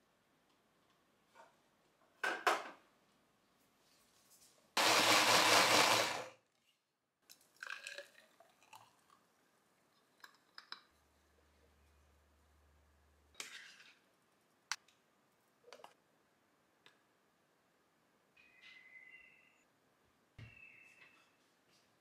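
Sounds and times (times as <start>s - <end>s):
small blender running: 4.8s - 6.3s.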